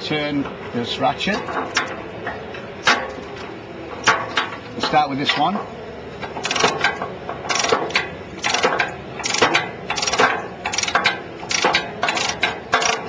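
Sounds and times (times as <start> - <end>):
ratchet wrench clicking: 6.4 - 6.9, 7.5 - 13.0.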